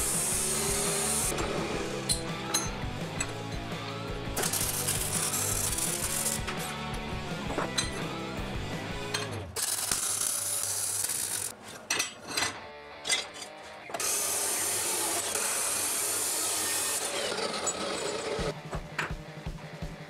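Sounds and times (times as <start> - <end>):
welding arc crackling: 0.0 - 2.0, 4.4 - 6.6, 9.6 - 11.6
cut-off saw grinding steel: 0.0 - 3.7, 4.4 - 6.6, 9.2 - 11.9, 13.1 - 18.5
music with steady beat: 0.0 - 9.1, 18.5 - 20.0.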